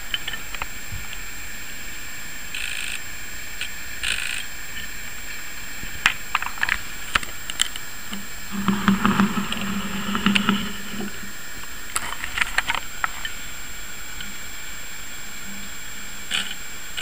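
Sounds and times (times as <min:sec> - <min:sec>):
background hiss: 0:00.0 - 0:17.0
low hum: 0:04.9 - 0:15.5.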